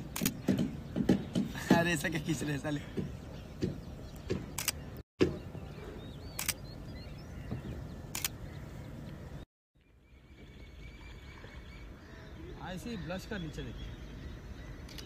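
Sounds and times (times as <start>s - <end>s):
camera shutter clicking: 6.4s - 6.6s, 8.1s - 8.4s.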